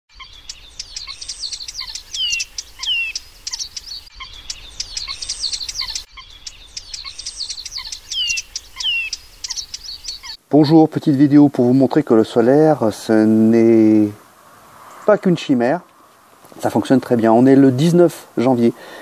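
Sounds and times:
birds twittering: 0:00.1 - 0:10.4
descending bird whistles: 0:00.1 - 0:10.4.

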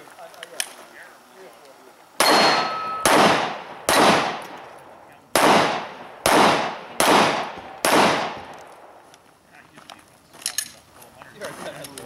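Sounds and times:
pistol shots echoing: 0:02.2 - 0:09.0.

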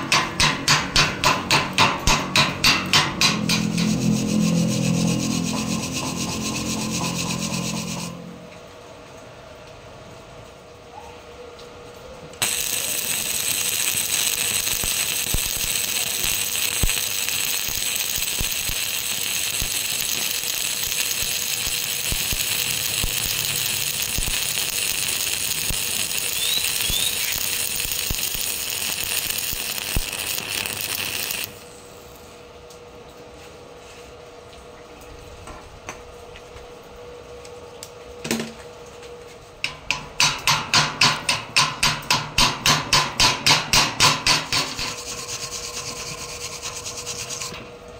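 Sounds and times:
chipping hammer striking metal: 0:00.0 - 0:04.0, 0:12.4 - 0:31.5, 0:39.9 - 0:44.9
welding arc crackling and hissing: 0:03.5 - 0:08.3, 0:12.4 - 0:31.6, 0:44.1 - 0:47.6.

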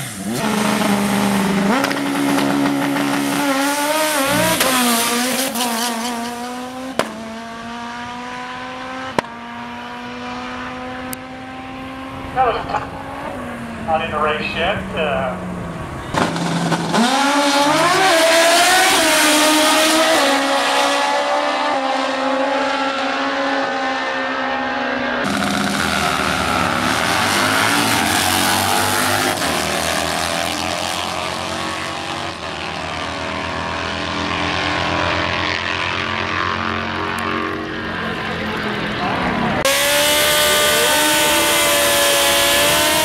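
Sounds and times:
motorcycle engines revving: 0:00.0 - 0:43.0.

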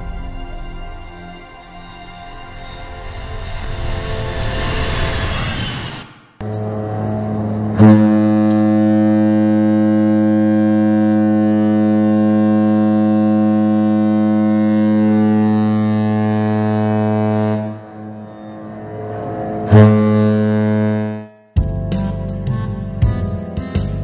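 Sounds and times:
ship's horn deep blast: 0:06.4 - 0:24.0.

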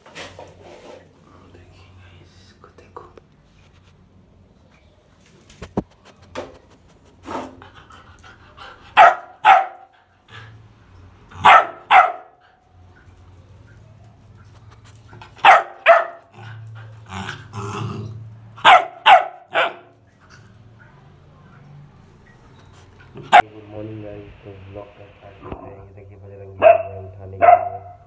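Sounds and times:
puppy barking: 0:08.9 - 0:10.0, 0:11.3 - 0:12.5, 0:15.2 - 0:17.4, 0:18.6 - 0:20.1, 0:23.0 - 0:23.5, 0:26.6 - 0:28.0.

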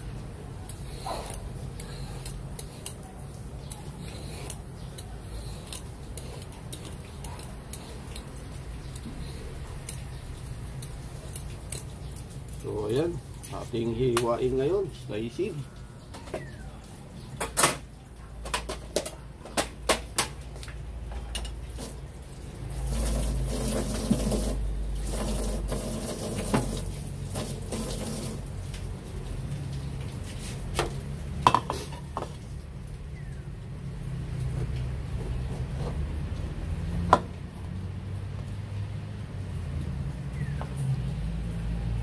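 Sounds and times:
dishes and utensils clinking: 0:21.1 - 0:21.8, 0:31.4 - 0:32.4.

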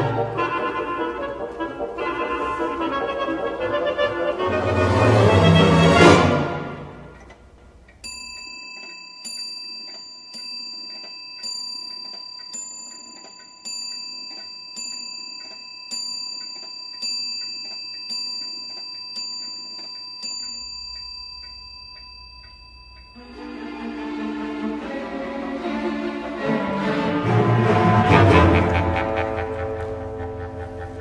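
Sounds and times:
clock chiming: 0:06.6 - 0:24.9
faint clock ticking: 0:06.9 - 0:26.4.

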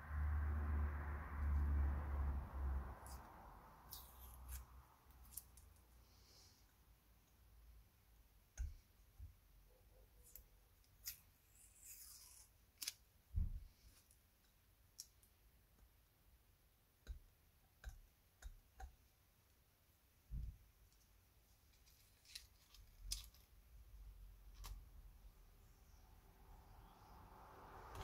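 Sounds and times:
paper rustling: 0:21.7 - 0:23.6.

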